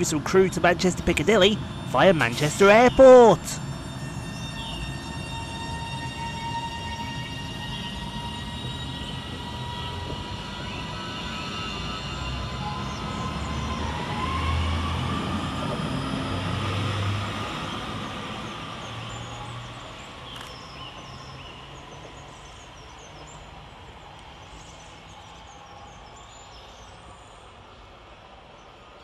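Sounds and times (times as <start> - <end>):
train traction motor whine: 0.0 - 28.9
low rumble of train wheels: 0.0 - 29.0
faint bird chirps: 18.4 - 27.8.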